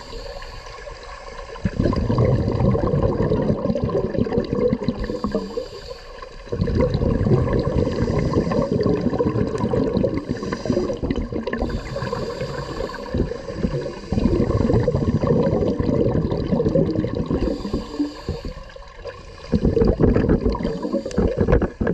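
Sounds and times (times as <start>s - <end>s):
underwater exhaled air bubbling: 0.0s - 21.9s
regulator breaths in: 5.0s - 6.4s, 7.8s - 9.0s, 10.2s - 14.7s, 17.3s - 21.6s.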